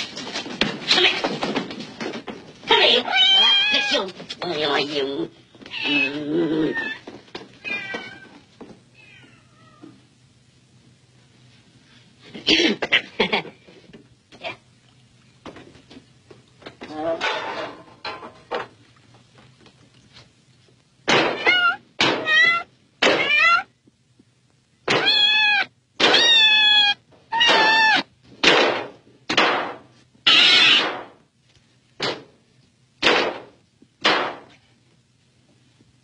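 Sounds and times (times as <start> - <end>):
cat meowing and yowling: 3.0 - 3.9, 24.9 - 28.1, 30.3 - 30.8.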